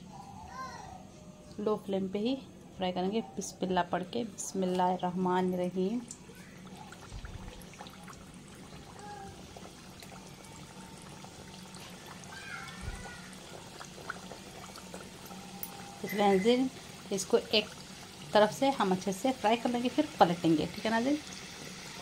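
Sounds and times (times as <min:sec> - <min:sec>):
food deep-frying in oil: 0:05.5 - 0:22.0.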